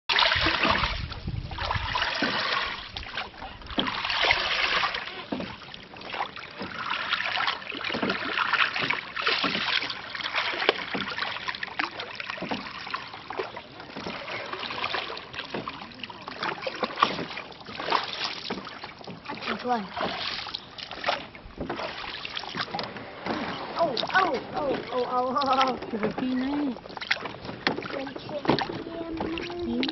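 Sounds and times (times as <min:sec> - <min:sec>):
oars splashing in water: 0:00.1 - 0:29.9
water dripping: 0:23.8 - 0:29.9.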